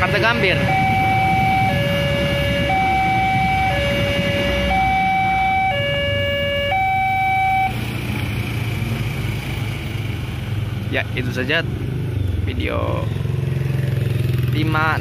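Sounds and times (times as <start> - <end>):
two-tone warning siren: 0.0 - 8.0.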